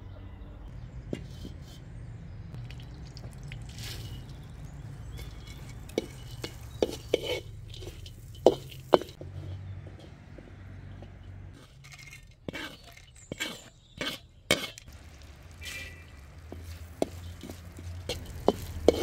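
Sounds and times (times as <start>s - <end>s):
metal ladle scraping a wok: 5.0s - 10.1s, 11.0s - 14.9s, 15.5s - 19.0s.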